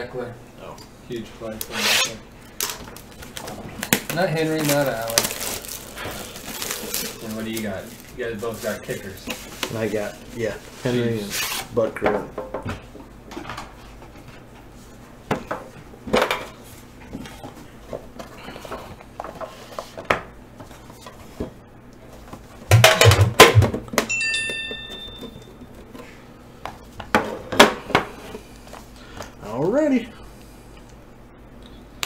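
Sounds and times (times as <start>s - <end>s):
boxes clattering on table: 22.7s - 26.0s
metallic ring: 24.1s - 25.6s.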